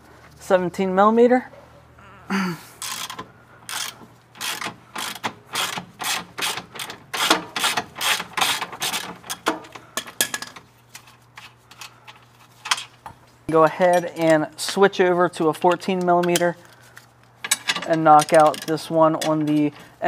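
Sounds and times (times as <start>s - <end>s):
socket ratchet clicking: 2.8s - 9.5s.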